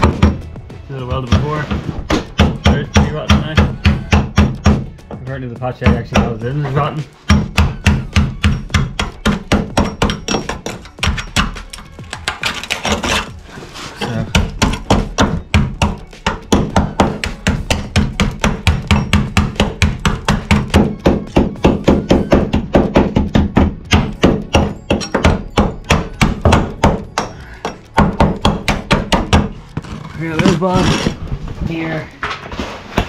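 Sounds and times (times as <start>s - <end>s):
axe knocking on steel panels: 0.0s - 0.5s, 7.2s - 13.1s, 14.3s - 29.6s.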